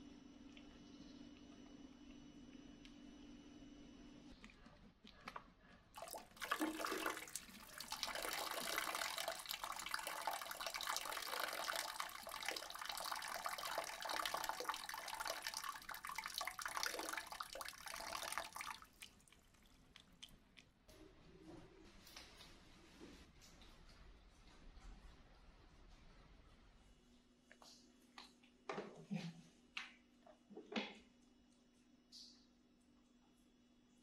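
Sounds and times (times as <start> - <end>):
water running: 6.0 - 20.3.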